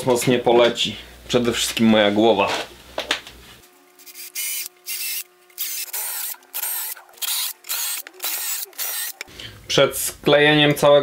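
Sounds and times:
cordless drill boring wood: 4.0 - 9.3.

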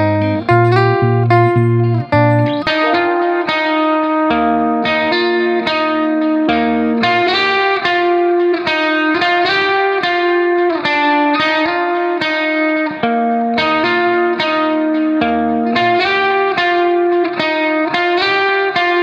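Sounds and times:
guitar with effects melody: 0.0 - 19.0.

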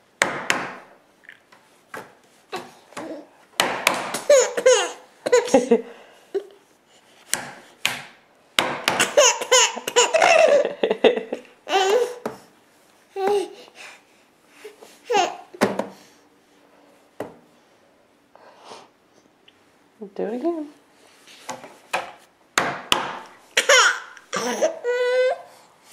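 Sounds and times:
baby belly laughing: 4.2 - 6.5, 9.0 - 12.2, 15.0 - 15.6, 23.6 - 25.4.

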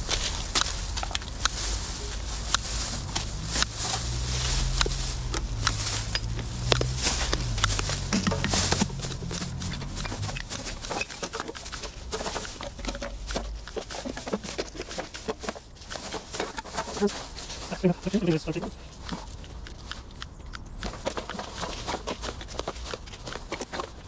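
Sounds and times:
low hum: 0.0 - 14.3.

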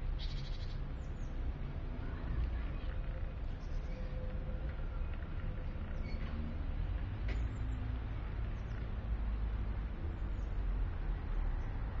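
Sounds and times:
faint high squeaks: 5.9 - 6.5.

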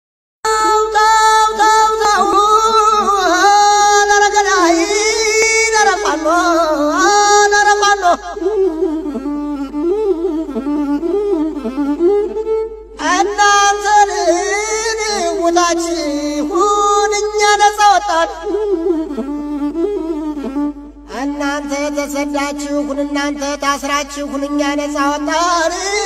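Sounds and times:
person singing: 0.4 - 26.0
bowed fiddle melody: 0.5 - 26.0.

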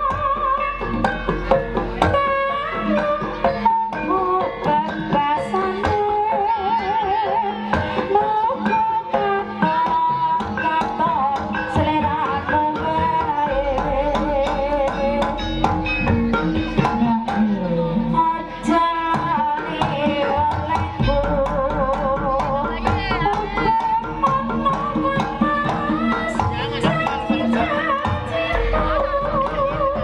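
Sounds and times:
hand-drum strokes: 7.8 - 30.0
wavering high melody: 20.0 - 30.0.

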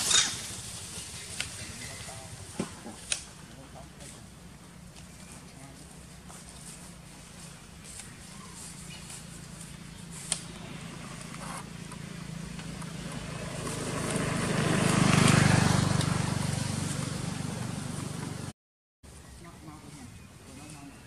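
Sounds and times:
vehicle engine drone passing: 5.6 - 18.5.

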